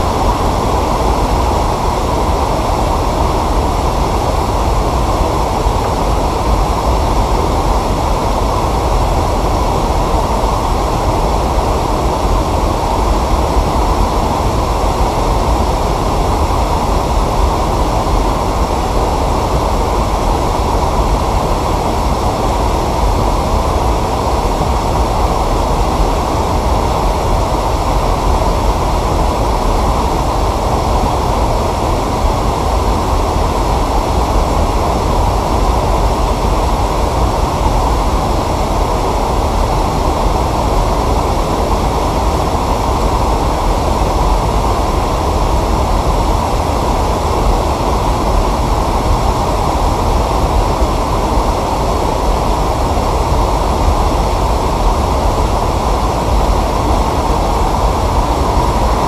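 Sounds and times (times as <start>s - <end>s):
loud rumbling noise: 0.0s - 59.0s.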